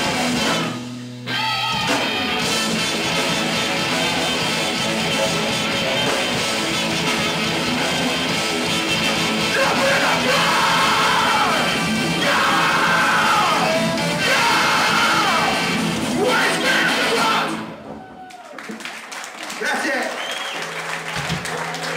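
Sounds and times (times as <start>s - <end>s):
ska-core band with electric guitars: 0.0s - 18.1s
singer shouting: 9.4s - 17.8s.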